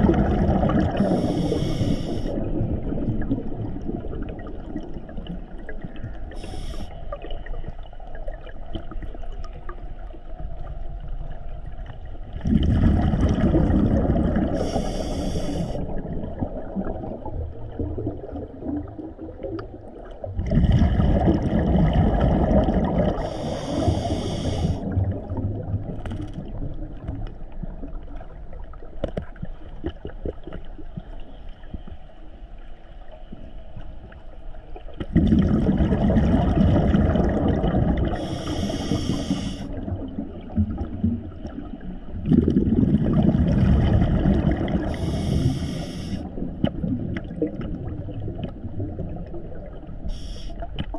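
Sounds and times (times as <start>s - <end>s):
regulator breath bubbles: 0.0s - 2.9s, 12.4s - 16.1s, 20.4s - 25.4s, 35.1s - 39.9s, 42.2s - 46.4s
low underwater rumble: 0.0s - 50.9s.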